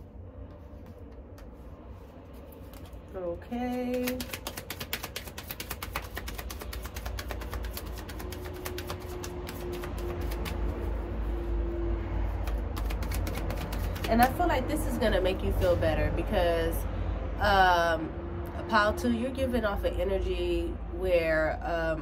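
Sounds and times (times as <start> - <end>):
low steady rumble: 0.0 - 4.4, 5.4 - 22.0
cards being shuffled: 0.4 - 11.0, 12.3 - 14.5.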